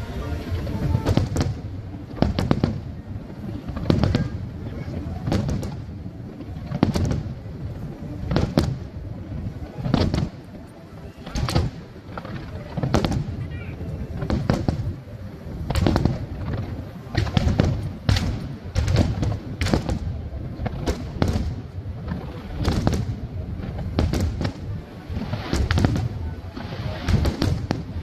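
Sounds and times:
low rumble: 0:00.0 - 0:28.0
firework shells bursting: 0:15.7 - 0:28.0.

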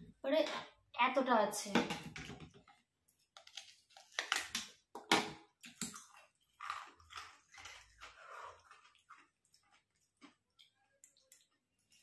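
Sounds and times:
ice crunching between teeth: 0:05.6 - 0:10.6
soft chewing: 0:05.6 - 0:12.0.

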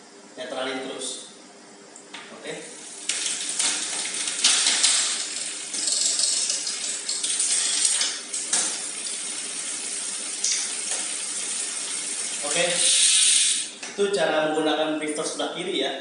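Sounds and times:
bike chain clinking over gears: 0:04.4 - 0:06.5, 0:07.4 - 0:08.0.

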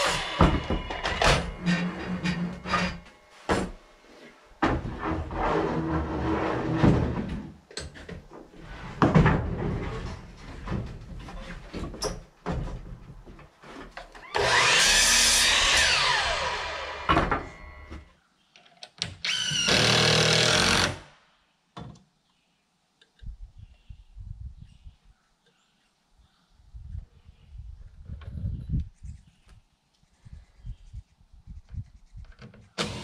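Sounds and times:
miter saw cutting and whining: 0:00.0 - 0:03.1, 0:14.2 - 0:18.0
boards knocking and clunking: 0:04.6 - 0:14.2.

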